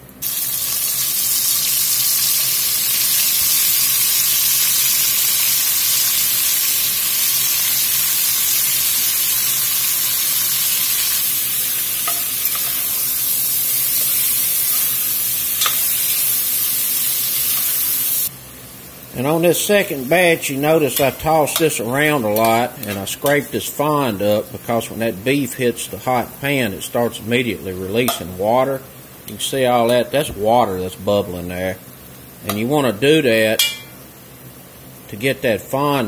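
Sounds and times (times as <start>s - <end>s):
meat sizzling in hot oil: 0.1s - 23.5s.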